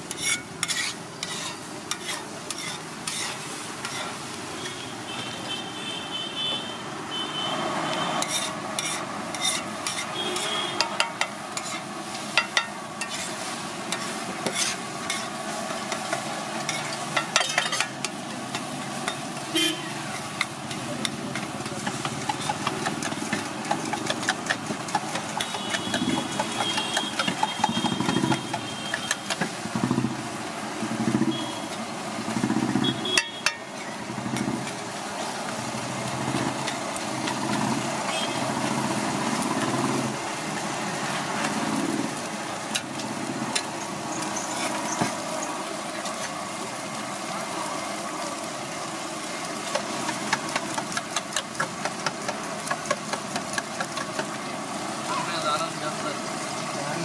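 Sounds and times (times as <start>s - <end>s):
spatula scraping on iron griddle: 0.0s - 4.8s, 8.1s - 19.3s, 19.9s - 29.5s, 42.7s - 45.2s.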